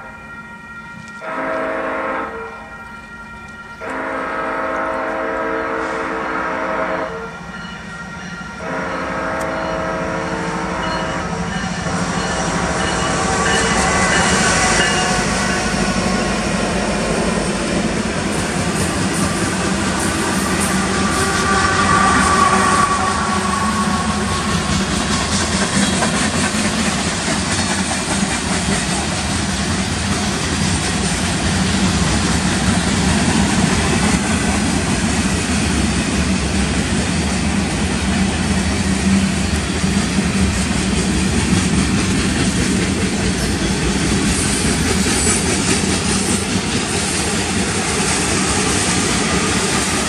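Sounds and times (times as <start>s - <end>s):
train air horn blasts: 0.0s - 17.6s, 18.5s - 26.1s
diesel locomotive rumble: 3.4s - 50.0s.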